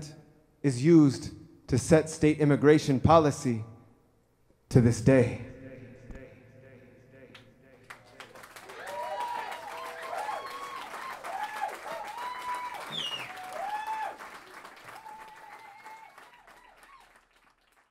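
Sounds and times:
people cheering: 7.8s - 17.5s
audience applauding: 7.8s - 17.9s.

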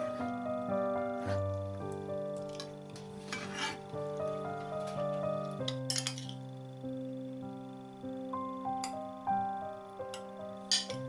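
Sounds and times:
metal spoon clinking dishes: 5.7s - 6.4s, 10.2s - 11.0s.

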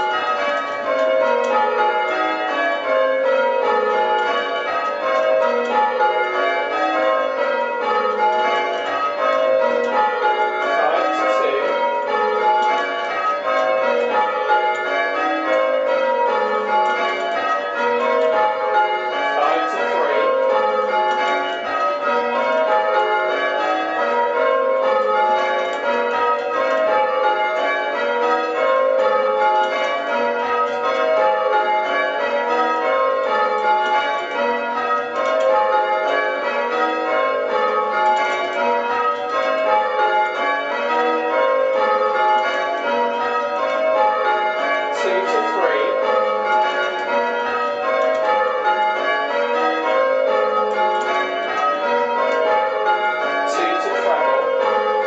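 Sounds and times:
church bells ringing: 0.0s - 55.0s.

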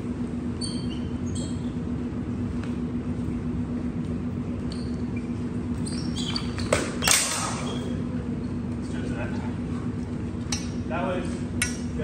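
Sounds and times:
steady hum: 0.0s - 12.0s
shoes squeaking on concrete: 0.6s - 1.8s, 4.6s - 8.8s.

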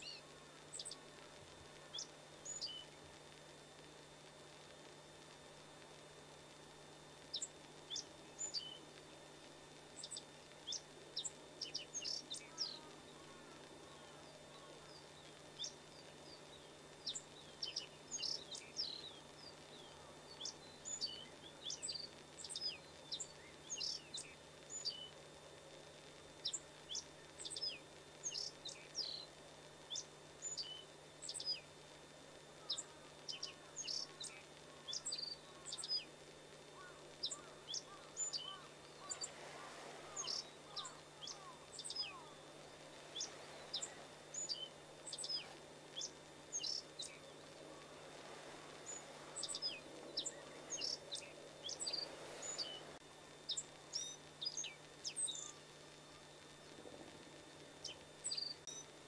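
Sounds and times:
bird singing high thin chirps: 0.0s - 1.1s, 1.8s - 3.0s, 7.3s - 8.8s, 10.0s - 25.1s, 26.4s - 29.3s, 29.9s - 31.7s, 32.6s - 36.1s, 36.8s - 48.1s, 48.7s - 56.2s, 57.8s - 58.9s
faint low hum: 0.0s - 59.0s
lower sliding bird notes: 36.7s - 57.2s.

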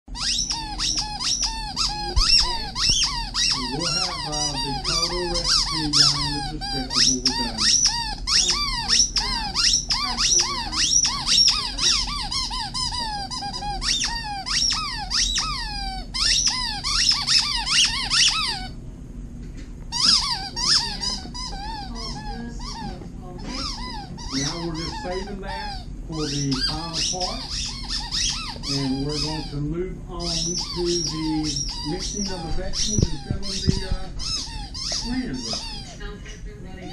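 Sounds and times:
squeaky toy squeaking: 0.1s - 18.8s, 19.9s - 23.0s, 23.6s - 29.6s, 30.2s - 36.1s.

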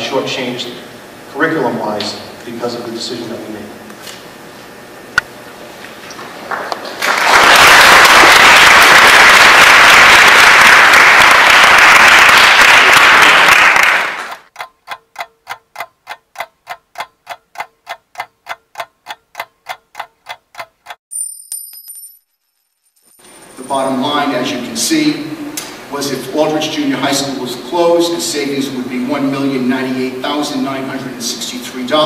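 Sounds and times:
audience applauding: 6.2s - 14.5s
fast steady ticking: 14.5s - 21.0s.

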